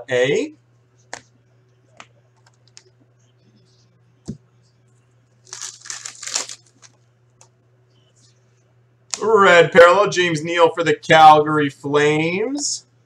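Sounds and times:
low steady hum: 0.0s - 13.0s
plastic wrapper tearing: 5.4s - 7.0s.

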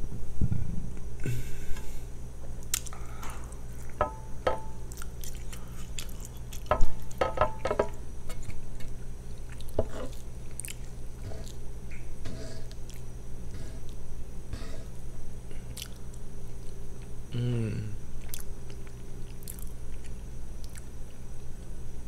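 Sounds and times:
wet chewing: 4.9s - 7.2s, 8.3s - 11.6s, 15.7s - 17.1s, 18.2s - 21.2s.

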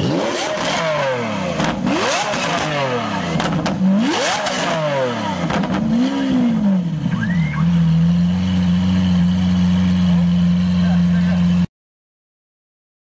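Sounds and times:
car engine revving with pops: 0.0s - 8.4s
car engine idling: 0.0s - 11.7s.

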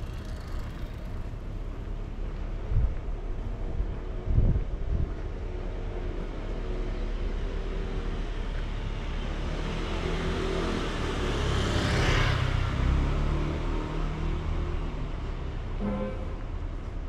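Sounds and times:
street traffic hum: 0.0s - 17.0s
car passing close by: 9.4s - 14.9s.

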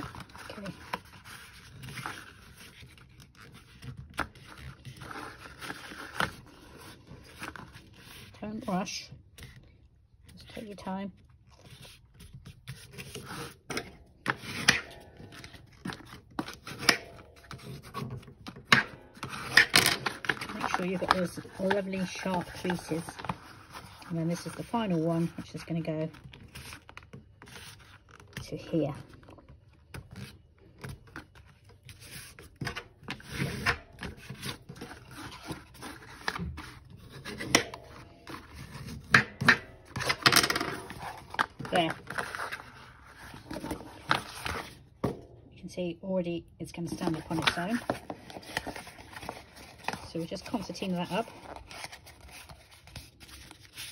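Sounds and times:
paper rustling and crackling: 0.0s - 9.6s, 11.3s - 45.0s, 46.9s - 53.9s
bone folder scraping paper: 31.9s - 39.2s.

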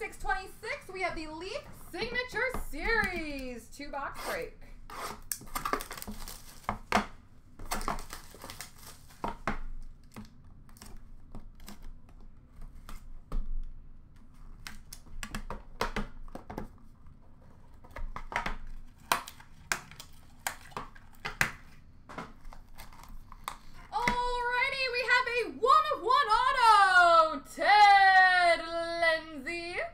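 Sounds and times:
cardboard crinkling and rustling: 5.4s - 7.0s, 7.6s - 13.6s, 16.2s - 23.9s.

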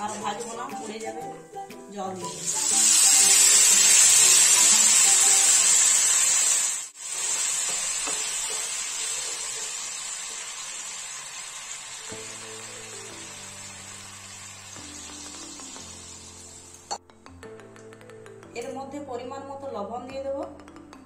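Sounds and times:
water sizzling in hot oil: 0.0s - 1.1s, 2.2s - 17.0s
background music: 0.0s - 5.7s, 12.1s - 21.0s.

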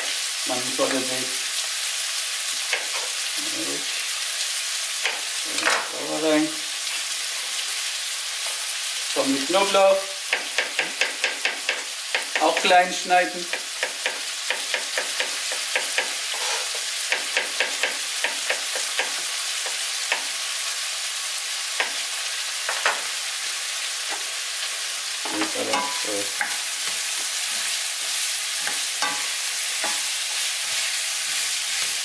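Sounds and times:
meat and vegetables sizzling in pan: 0.0s - 32.0s
spatula stirring pan: 10.2s - 20.4s, 25.2s - 32.0s.

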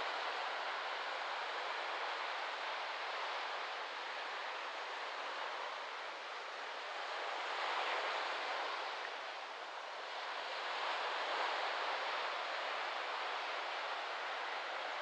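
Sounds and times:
small waves washing on sand: 0.0s - 15.0s
wind in palm fronds: 0.0s - 15.0s.

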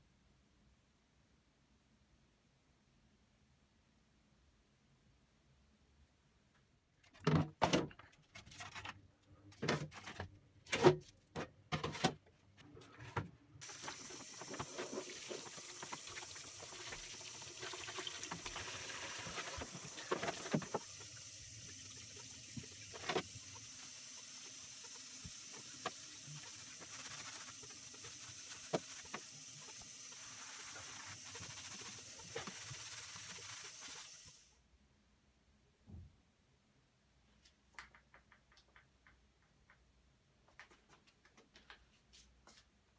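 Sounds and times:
water running into bowl: 13.6s - 34.3s
scrubbing: 25.5s - 34.3s.

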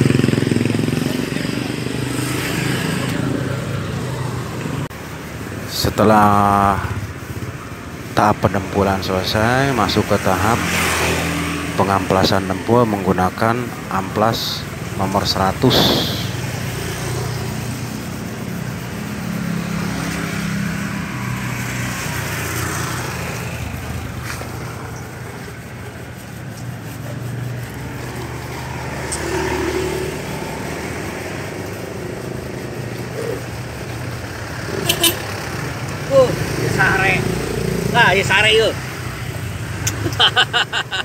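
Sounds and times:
sandpaper rubbing by hand: 12.0s - 36.6s.

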